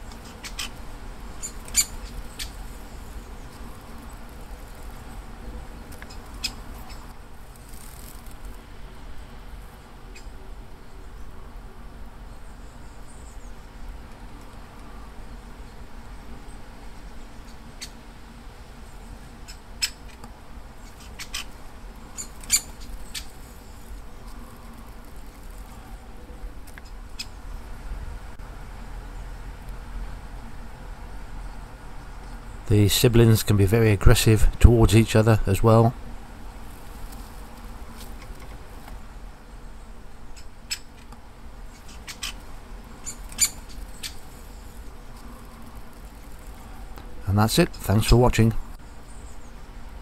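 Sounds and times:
woodpecker calls: 0.0s - 7.1s, 20.8s - 25.9s, 40.3s - 41.0s, 41.7s - 48.0s
low background hum: 0.0s - 50.0s
woodpecker squeaky calls: 1.4s - 2.6s, 20.8s - 23.9s, 41.7s - 42.4s, 43.0s - 44.6s.

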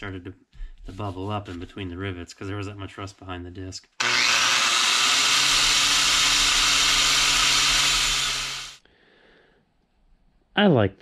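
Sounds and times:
angle grinder wire-brushing metal: 4.0s - 8.8s.

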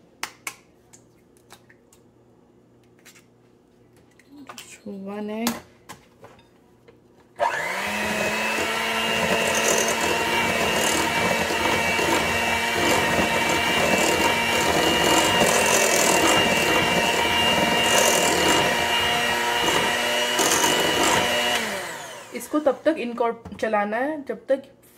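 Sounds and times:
electric hand mixer whining: 7.4s - 22.9s.

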